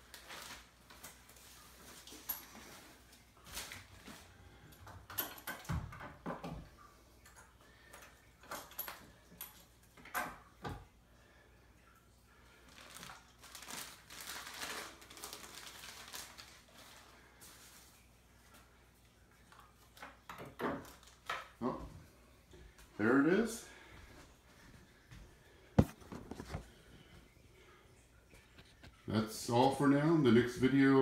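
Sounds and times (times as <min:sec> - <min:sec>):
plastic and paper wrapping crinkling: 0:00.0 - 0:04.4, 0:12.7 - 0:18.2, 0:20.8 - 0:21.6.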